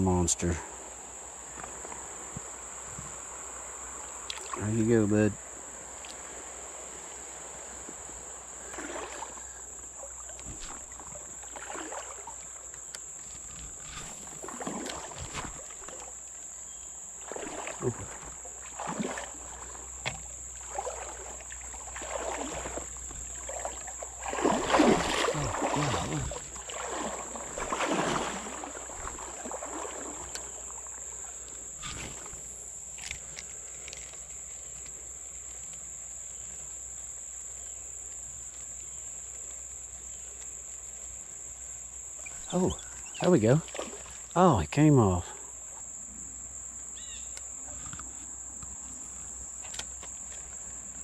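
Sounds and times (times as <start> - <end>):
high insect drone: 0.0 - 51.0
water sloshing around legs: 4.0 - 4.8, 7.4 - 36.6, 42.1 - 44.4.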